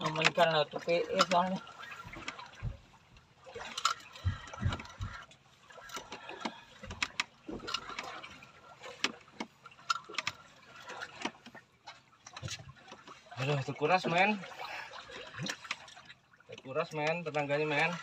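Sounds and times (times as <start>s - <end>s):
water slapping against boat hull: 0.0s - 18.0s
irregular knocks and clicks: 1.2s - 8.2s.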